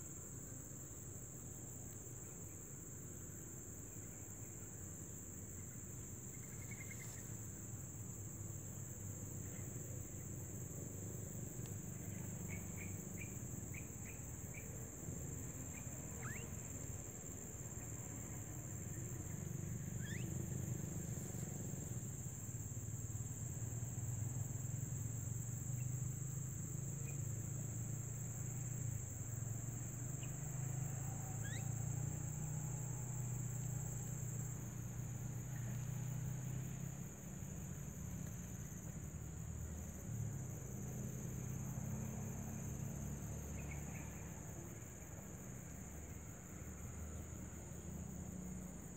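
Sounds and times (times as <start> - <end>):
insects shrilling: 6.3 - 7.6, 15.4 - 16.7, 19.0 - 22.6, 31.2 - 33.6.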